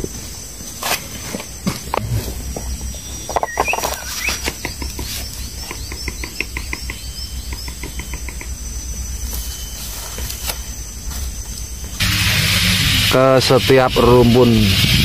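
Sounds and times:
bird calling: 1.8s - 12.0s
low steady rumble: 1.9s - 3.3s, 4.6s - 15.0s.

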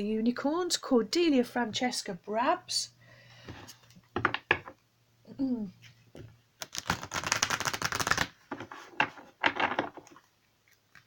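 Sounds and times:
cards being shuffled: 5.8s - 11.0s.

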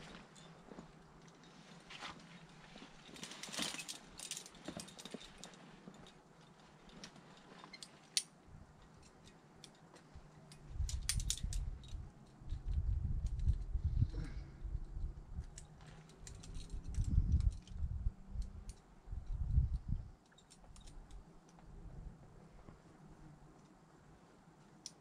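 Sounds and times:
climbing hardware clinking: 0.0s - 21.6s
wind rumble on microphone: 10.6s - 22.9s.

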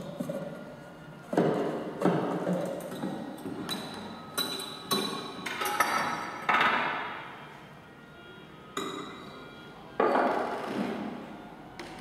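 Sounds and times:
ringing clinks and knocks: 3.7s - 6.8s.

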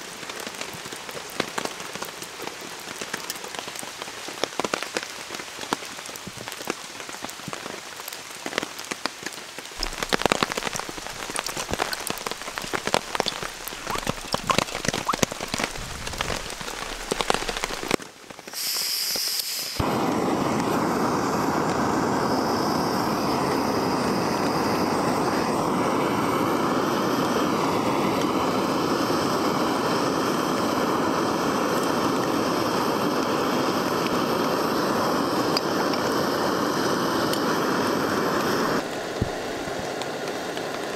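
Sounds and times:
rain falling on ferns and rocks: 0.0s - 20.8s, 27.3s - 40.9s
gas hissing from stove: 15.3s - 40.9s.

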